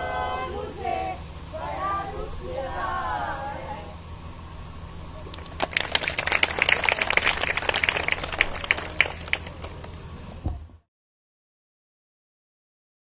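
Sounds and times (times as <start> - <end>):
steady low hum: 0.0 - 10.8
crowd applauding: 5.2 - 10.2.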